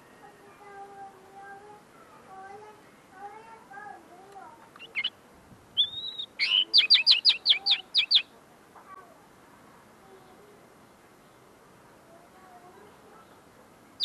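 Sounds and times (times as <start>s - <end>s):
linnet singing: 4.8s - 5.2s, 5.8s - 8.3s.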